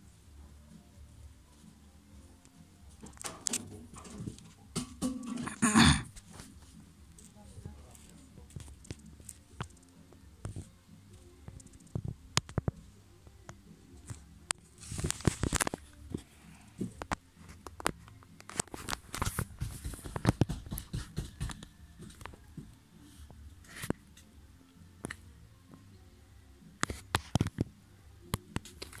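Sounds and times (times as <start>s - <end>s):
sharp clicks and crackles: 10.5s - 12.8s
rustling: 14.1s - 20.4s.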